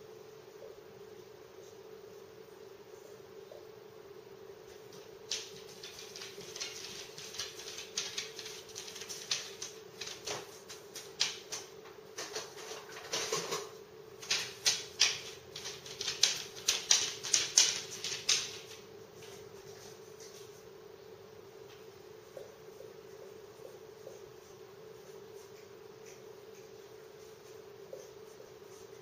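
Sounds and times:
dog claws clicking on floor: 4.9 - 19.4.

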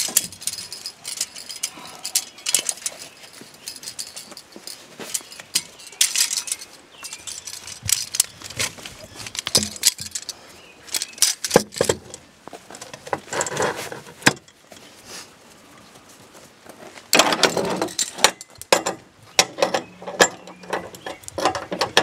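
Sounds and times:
strap hooks clinking in metal track: 0.0 - 12.2, 17.1 - 22.0.

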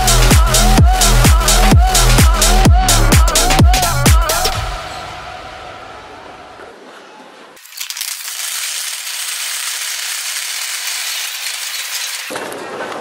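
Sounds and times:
music: 0.0 - 6.2
shopping cart rattling: 7.6 - 13.0.

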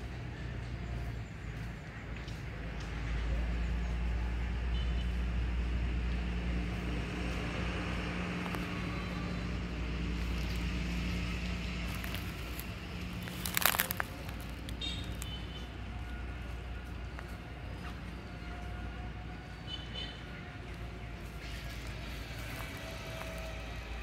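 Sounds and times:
loud crackle: 12.0 - 15.4.

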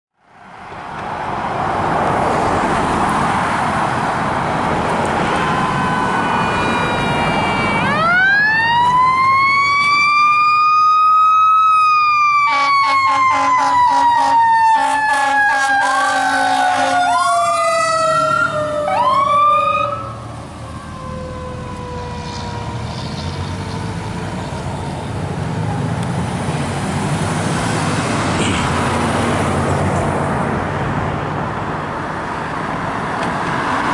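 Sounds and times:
passing road traffic: 0.2 - 33.9
mechanical siren wailing: 5.2 - 24.3
air horn blasts: 5.3 - 7.9, 12.5 - 17.1.

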